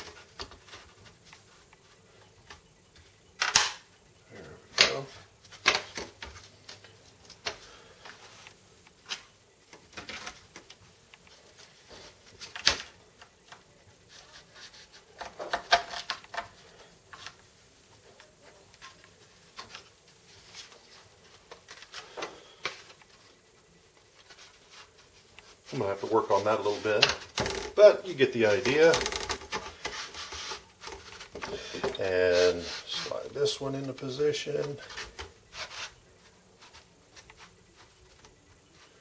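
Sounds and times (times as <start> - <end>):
wooden parts clicking and knocking: 27.0 - 27.9, 28.6 - 30.0, 30.8 - 32.1.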